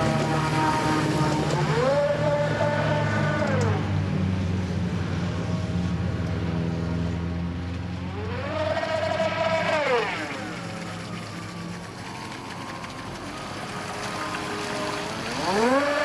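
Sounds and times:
electric motor whining: 8.1s - 16.0s.

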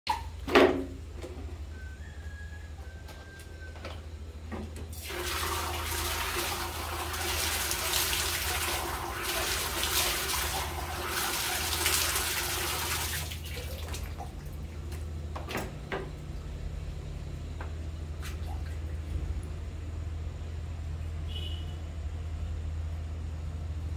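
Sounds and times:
water poured into plastic basin: 5.0s - 15.0s
light knocks and small splashes: 13.3s - 16.6s, 17.6s - 19.6s
steady low hum: 13.5s - 23.9s.

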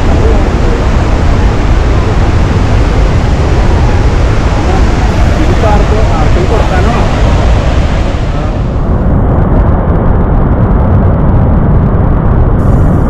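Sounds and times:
waterfall roaring: 0.0s - 9.0s.

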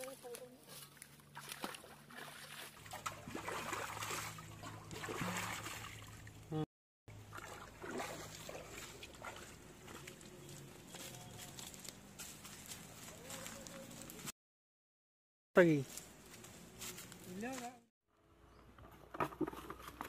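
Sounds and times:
wading through muddy water: 0.0s - 14.3s.

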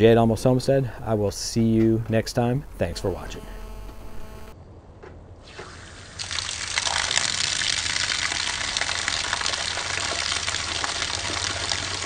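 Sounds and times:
low steady hum: 0.0s - 12.0s
hose water spraying onto mud: 5.4s - 12.0s.

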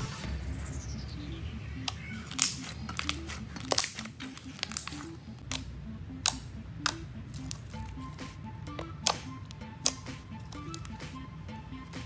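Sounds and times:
background music melody: 0.0s - 12.0s
slime popping and crackling: 1.8s - 11.0s.

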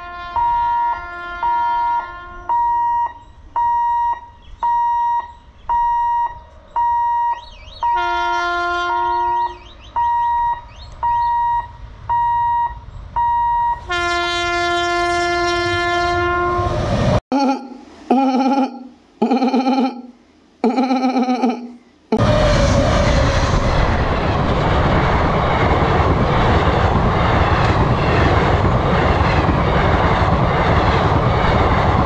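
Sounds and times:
locomotive horn blasts: 0.0s - 2.8s, 7.8s - 9.7s, 13.7s - 16.9s
level crossing signal beeping: 2.5s - 8.0s, 9.8s - 13.9s.

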